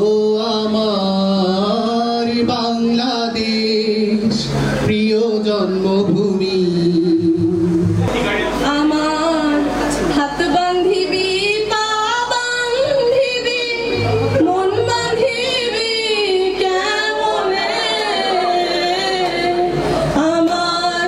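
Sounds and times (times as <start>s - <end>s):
woman singing: 8.6s - 21.0s.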